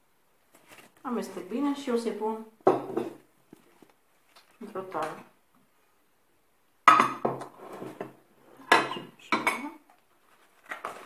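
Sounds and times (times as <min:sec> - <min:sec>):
glass dishes knocking on table: 0:02.6 - 0:03.2, 0:06.9 - 0:08.1, 0:08.7 - 0:09.7.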